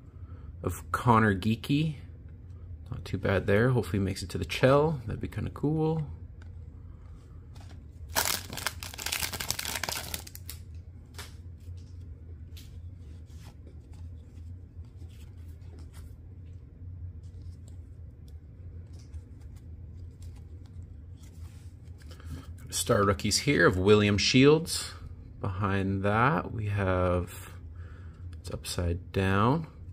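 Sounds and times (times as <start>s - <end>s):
low steady hum: 0.0s - 29.9s
cards rustling and ticking: 7.6s - 22.6s
foil wrapper tearing: 8.1s - 10.6s.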